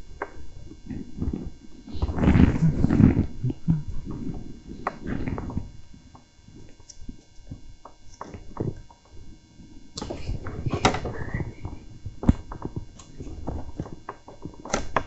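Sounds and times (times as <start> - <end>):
clothing rustling: 0.8 - 8.8.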